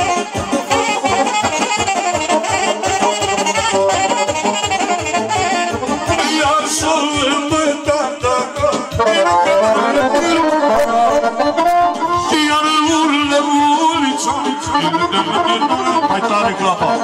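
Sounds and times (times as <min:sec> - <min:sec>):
accordion: 0:00.0 - 0:17.0
saxophone melody: 0:00.0 - 0:17.0
steady bass beat: 0:05.3 - 0:16.1.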